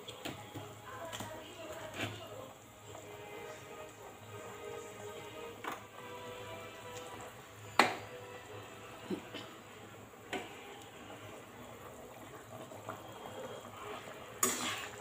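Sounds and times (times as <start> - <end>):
curry bubbling in a pan: 0.0 - 15.0
ladle scraping pan: 12.3 - 15.0.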